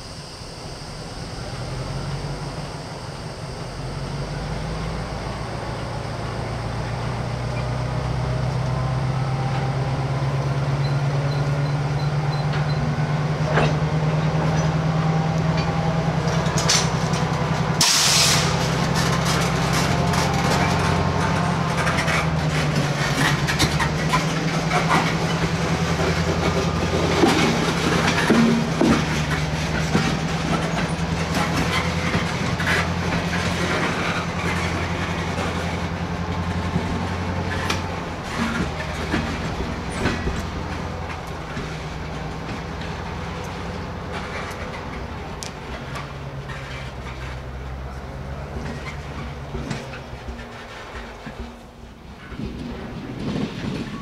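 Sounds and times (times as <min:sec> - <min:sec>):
diesel locomotive engine running: 0:00.0 - 0:54.0
wheels clicking and clanking: 0:05.4 - 0:54.0
air hiss burst: 0:17.8 - 0:18.5.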